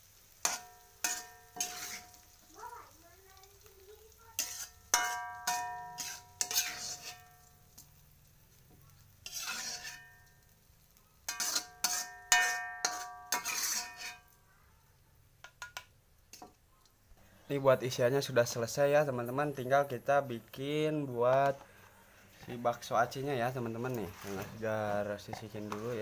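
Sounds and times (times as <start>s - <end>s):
metal spatula scraping a wok: 0.0s - 2.4s, 3.6s - 14.4s, 21.4s - 26.0s
wok ringing: 0.2s - 2.8s, 4.2s - 8.5s, 9.1s - 10.6s, 11.2s - 14.5s.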